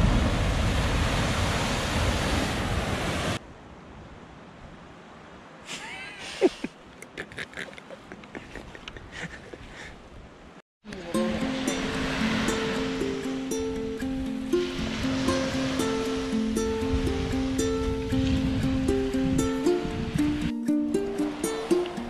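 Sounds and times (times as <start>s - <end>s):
surf crashing against rock: 0.0s - 3.4s, 14.5s - 20.2s
wind on microphone: 0.0s - 4.9s, 11.6s - 22.0s
faint hiss: 4.8s - 8.0s.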